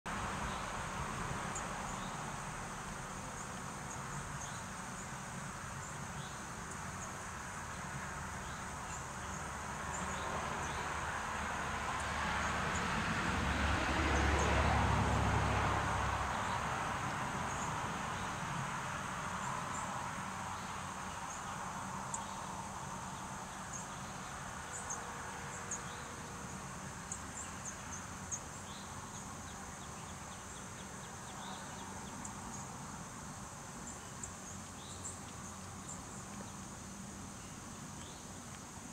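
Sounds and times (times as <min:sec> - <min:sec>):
crickets chirping: 0:00.1 - 0:38.9.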